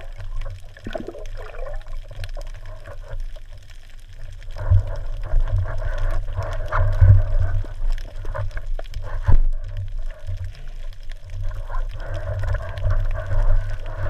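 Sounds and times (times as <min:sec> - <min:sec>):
water sloshing and gurgling: 0:00.0 - 0:03.4
low uneven rumble: 0:00.0 - 0:14.0.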